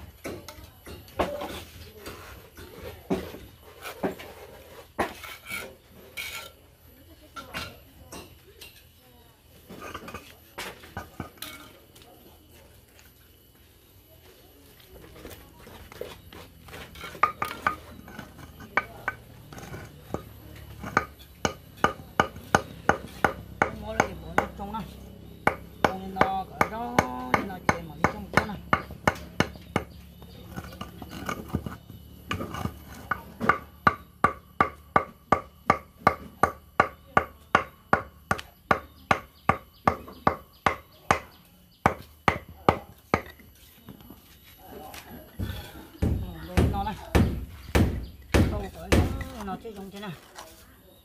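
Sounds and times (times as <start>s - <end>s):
tool tapping concrete block: 16.0s - 44.0s, 45.4s - 49.5s.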